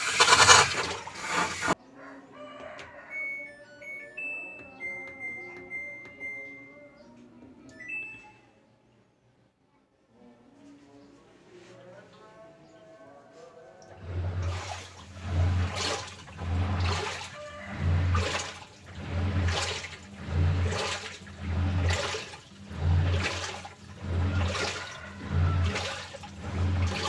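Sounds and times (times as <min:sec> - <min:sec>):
washing machine motor humming: 0:00.0 - 0:01.8, 0:03.2 - 0:06.9, 0:13.8 - 0:27.0
water sloshing in tub: 0:00.0 - 0:01.8, 0:13.8 - 0:27.0.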